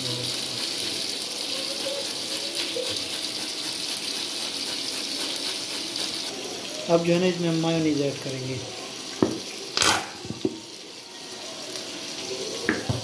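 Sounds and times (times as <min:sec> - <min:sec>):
steady frying hiss: 0:00.0 - 0:13.0
cabbage rasping on grater: 0:00.3 - 0:06.4.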